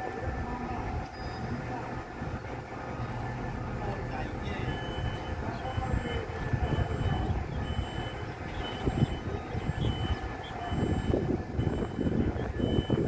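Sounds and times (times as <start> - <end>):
faint whining tones: 0.0 - 13.0
heavy machinery drone: 0.0 - 13.0
low machinery rumble: 0.0 - 13.0.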